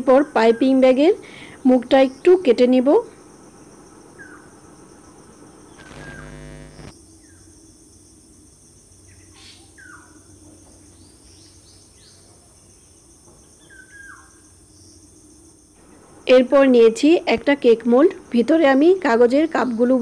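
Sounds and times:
steady high hiss: 2.5 - 6.9
loud pitched buzz: 5.7 - 6.9.

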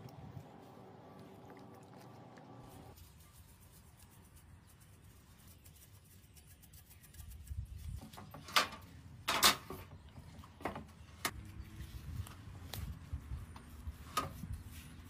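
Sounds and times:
hands rubbing raw chicken: 2.7 - 8.2.

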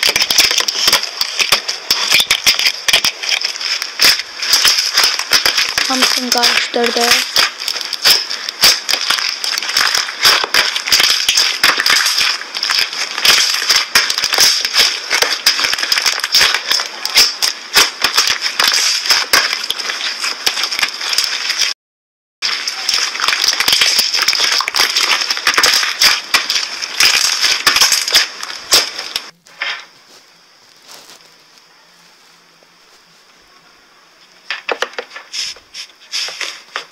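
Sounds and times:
slime crackling and popping: 0.0 - 21.7, 22.4 - 29.4.

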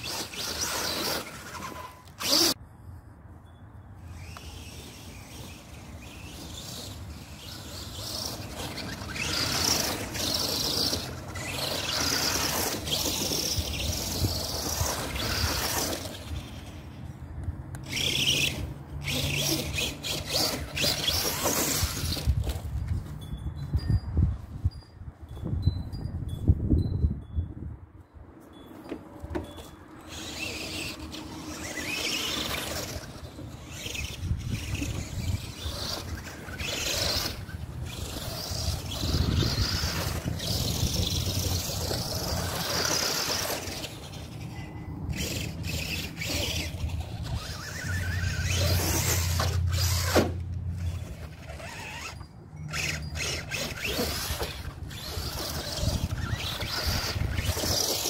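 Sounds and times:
toy truck electric motor whining: 0.0 - 2.6, 4.0 - 22.8, 29.6 - 58.0.

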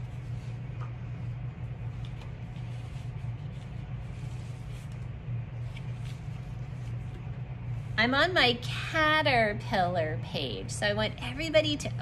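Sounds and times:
steady low hum: 0.0 - 12.0
notebook pages turning: 1.9 - 7.1.

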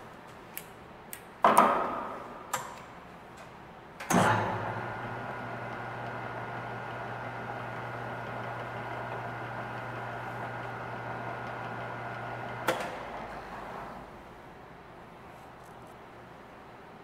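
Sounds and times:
lathe humming: 4.7 - 13.9.

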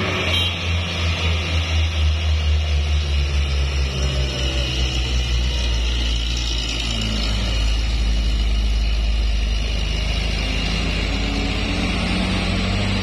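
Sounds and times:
diesel truck engine labouring: 0.0 - 13.0.

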